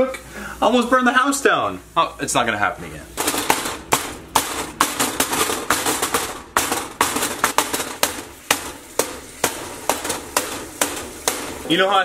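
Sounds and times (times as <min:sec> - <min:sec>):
meat sizzling: 0:00.0 - 0:12.0
spatula knocking against pan: 0:03.2 - 0:11.6.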